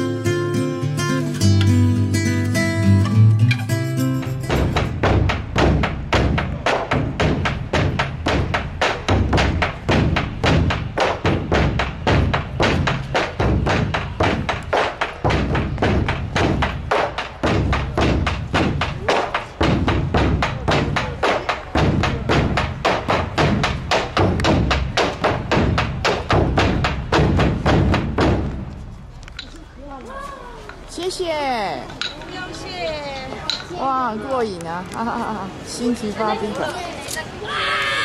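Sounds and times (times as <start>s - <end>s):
barrel drums beaten fast: 4.4s - 28.7s.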